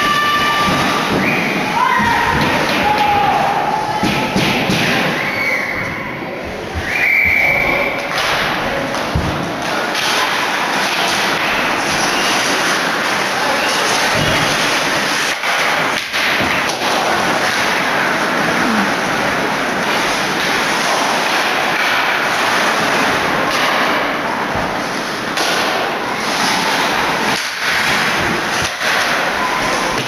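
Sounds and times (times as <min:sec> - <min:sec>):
crowd cheering and yelling: 0:00.0 - 0:04.4.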